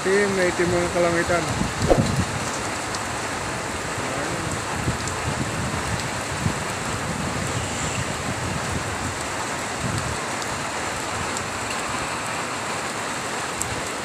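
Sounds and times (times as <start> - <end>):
heavy rain downpour: 0.0 - 14.0
strong wind gusts: 1.3 - 11.6.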